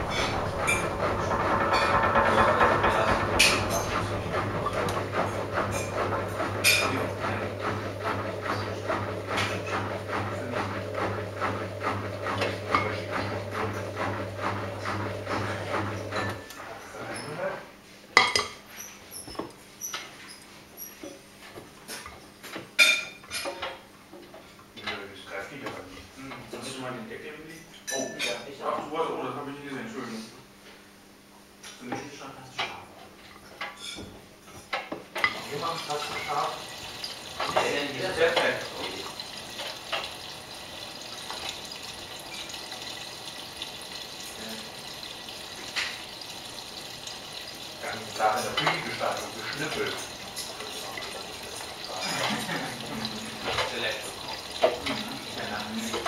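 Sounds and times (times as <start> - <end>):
clinks and knocks in drum: 0.0 - 16.5
washing machine tumbling clothes: 0.0 - 17.5, 32.7 - 56.0.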